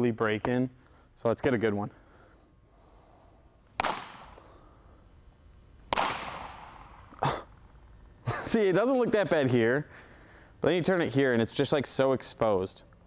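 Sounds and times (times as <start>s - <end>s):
baseball popping into glove: 5.9s - 7.2s.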